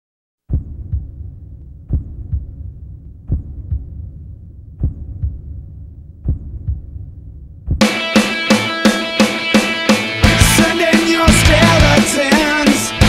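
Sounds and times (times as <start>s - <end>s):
heartbeat thumps: 0.4s - 8.1s
low hum: 0.5s - 7.8s
loud rock music with drums: 7.8s - 13.0s.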